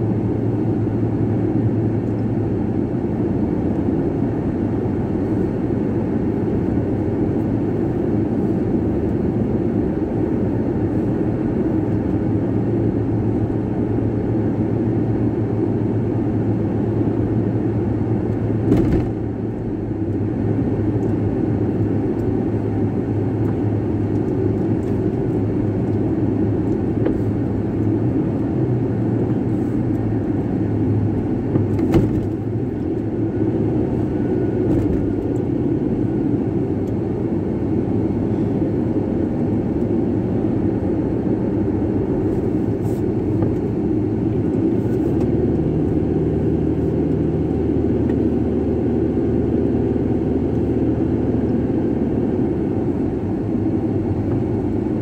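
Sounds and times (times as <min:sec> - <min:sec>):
engine and tyre road noise: 0:00.0 - 0:55.0
brief thump: 0:18.7 - 0:19.2, 0:31.5 - 0:32.4.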